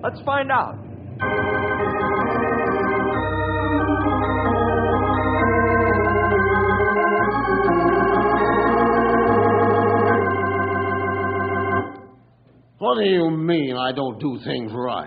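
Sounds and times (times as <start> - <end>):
sustained organ chords: 0.9 - 12.3.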